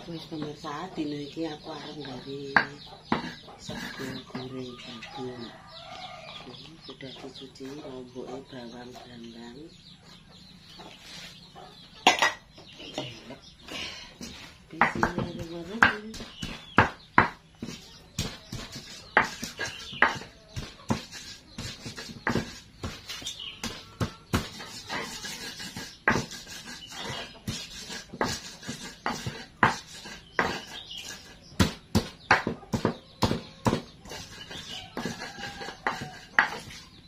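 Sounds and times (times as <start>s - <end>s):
stone pestle knocking in mortar: 2.5s - 4.4s, 14.2s - 36.8s.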